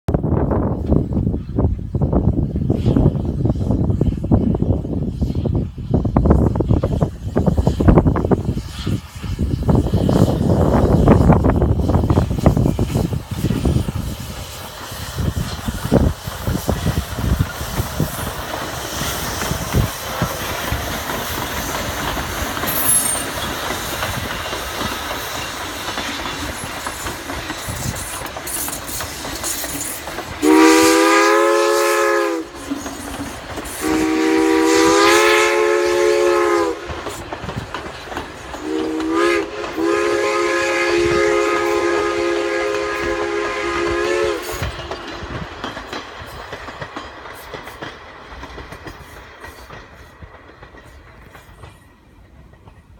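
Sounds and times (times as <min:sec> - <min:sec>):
train wheels clicking over rail joints: 0:00.7 - 0:52.9
chime steam whistle blasts: 0:22.7 - 0:23.5, 0:30.4 - 0:36.9, 0:38.6 - 0:44.9.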